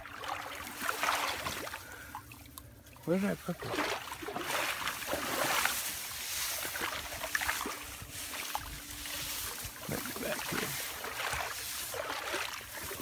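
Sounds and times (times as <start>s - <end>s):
dry grass rustling: 3.8s - 13.0s.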